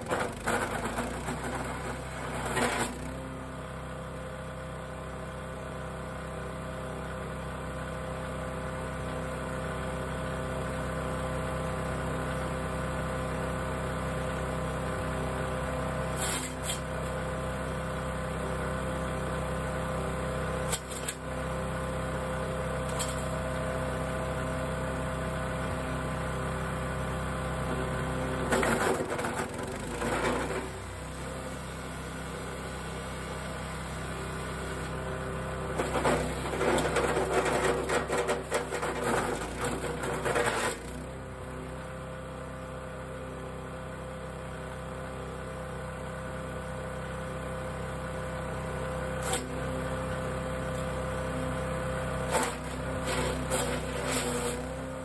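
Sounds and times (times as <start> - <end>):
wood chipper crunching branch: 0.0 - 3.7, 14.8 - 41.8, 48.9 - 55.0
small gas engine running: 0.0 - 55.0.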